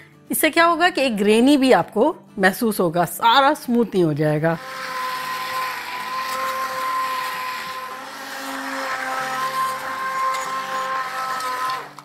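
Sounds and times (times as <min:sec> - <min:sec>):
immersion blender motor whine: 0:04.6 - 0:12.0.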